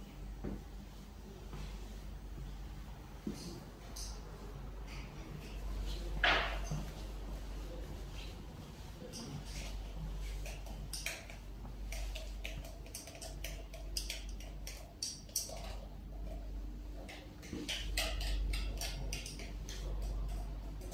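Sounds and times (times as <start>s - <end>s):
steady low hum: 0.0s - 20.9s.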